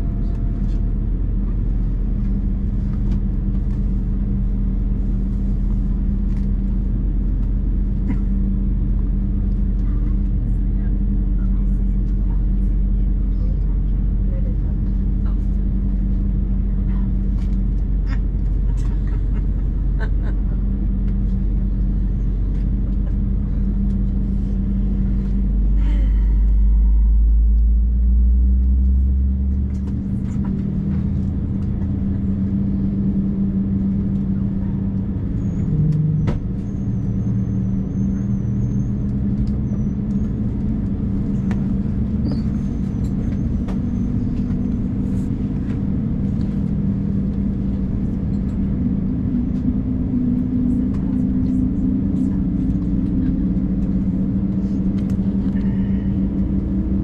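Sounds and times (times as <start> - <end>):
deep aircraft cabin rumble: 0.0 - 57.0
steady engine hum: 0.0 - 57.0.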